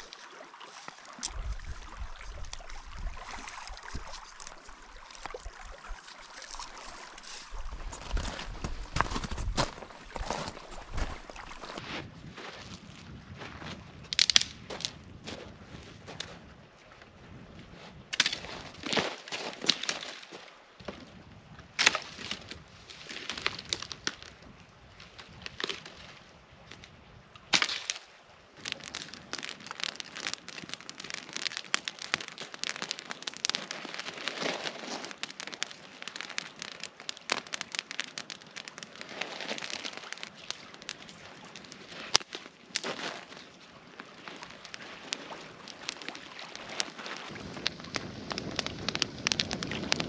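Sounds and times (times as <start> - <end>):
wood fire crackling: 0.0 - 11.9, 28.6 - 50.0
footsteps crunching over brush: 0.0 - 13.8, 28.6 - 50.0
dry branches snapping: 3.7 - 5.5, 14.1 - 14.9, 18.2 - 20.2, 27.5 - 28.0, 28.6 - 43.4, 44.1 - 50.0.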